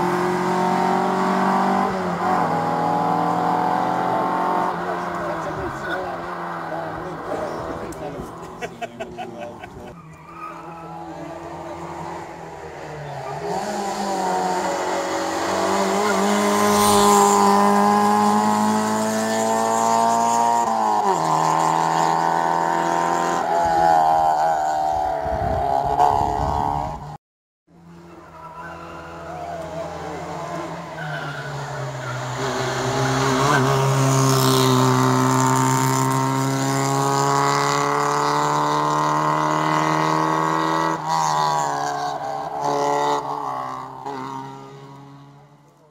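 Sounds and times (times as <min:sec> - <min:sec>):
rally car engine passing: 0:00.0 - 0:45.9
tyre squeal: 0:09.8 - 0:11.2, 0:30.9 - 0:33.9.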